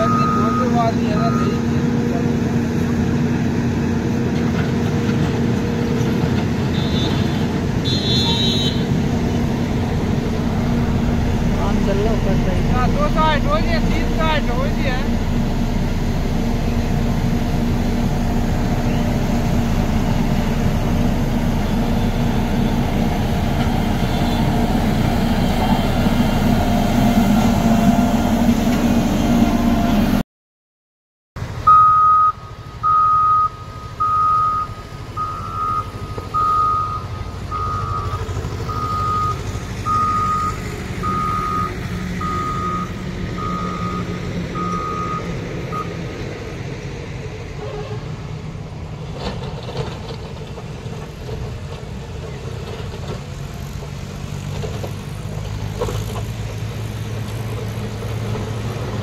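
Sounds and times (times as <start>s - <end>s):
reversing alarm beeping: 0.0s - 1.7s, 31.7s - 46.0s
heavy diesel engines running: 0.0s - 30.2s, 31.4s - 59.0s.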